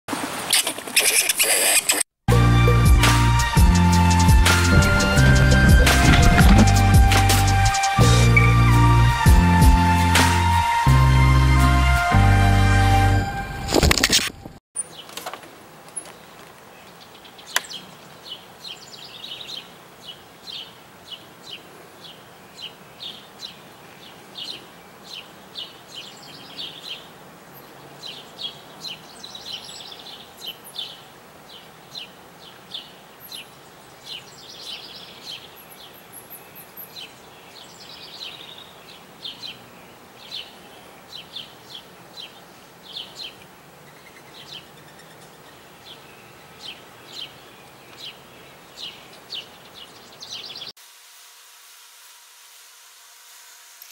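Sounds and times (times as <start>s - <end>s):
birds chirping: 3.6s - 8.9s, 14.8s - 50.7s.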